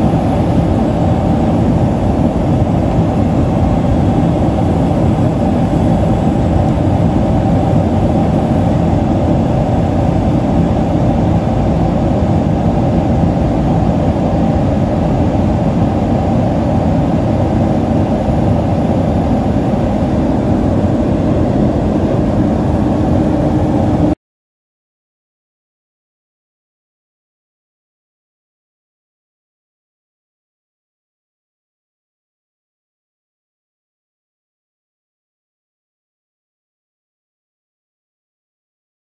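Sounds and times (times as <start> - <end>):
airplane cabin engine noise: 0.0 - 24.2.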